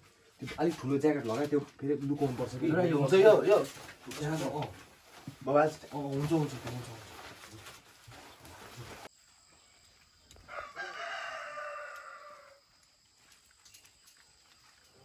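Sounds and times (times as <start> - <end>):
rooster crowing: 10.4 - 12.8.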